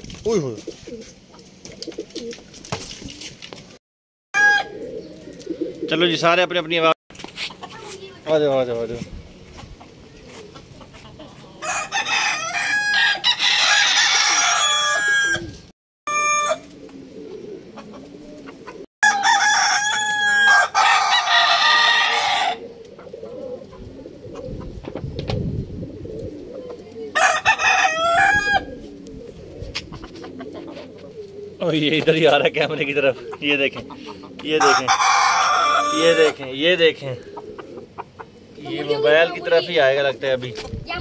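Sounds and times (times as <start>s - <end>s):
roosters crowing: 4.4s - 5.1s, 10.9s - 23.7s, 27.1s - 29.0s, 32.8s - 38.6s
chicken calls: 9.8s - 24.9s, 26.2s - 31.8s, 32.4s - 39.4s.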